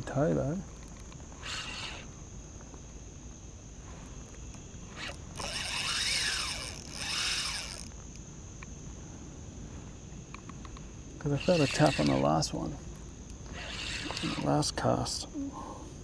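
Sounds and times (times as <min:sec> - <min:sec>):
fishing reel zipping: 0:01.4 - 0:02.1, 0:04.9 - 0:08.0, 0:11.3 - 0:12.4, 0:13.5 - 0:14.7.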